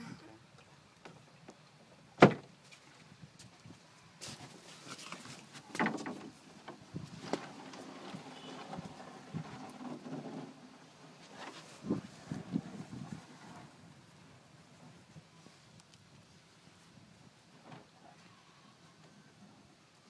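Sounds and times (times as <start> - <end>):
wooden knocks and thumps on boat: 2.2 - 2.5, 5.6 - 10.6.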